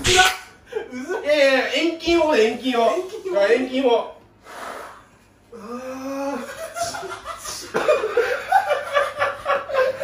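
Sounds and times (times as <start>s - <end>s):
men laughing: 0.6s - 1.4s, 6.1s - 10.0s.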